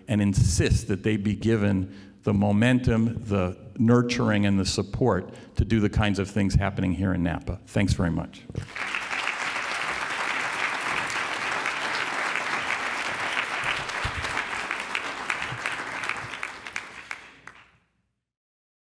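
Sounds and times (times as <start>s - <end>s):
audience applauding: 8.6s - 17.7s.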